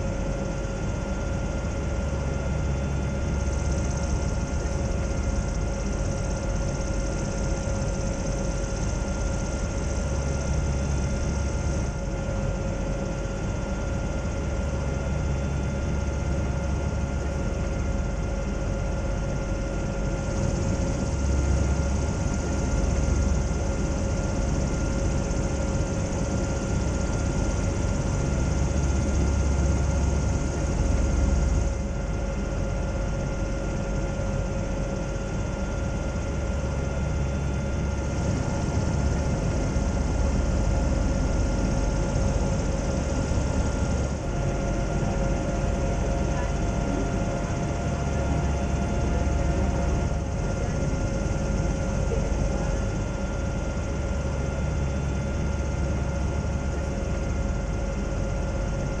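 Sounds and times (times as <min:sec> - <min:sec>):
airship engines droning: 0:36.1 - 0:53.3.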